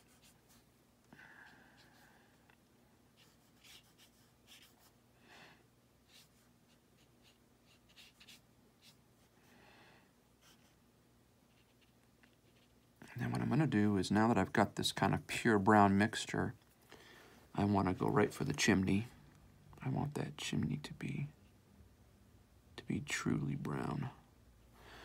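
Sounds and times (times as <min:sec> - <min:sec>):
brush strokes on paper: 0:00.0 - 0:00.7, 0:03.1 - 0:05.0, 0:06.0 - 0:09.4, 0:11.5 - 0:12.9.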